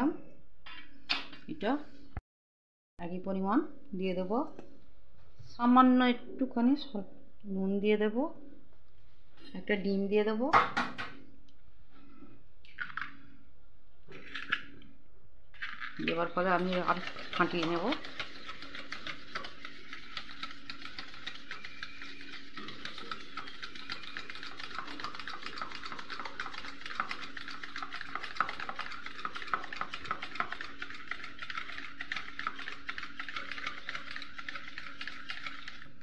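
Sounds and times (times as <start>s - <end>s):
whisk clicking against bowl: 16.0s - 36.0s.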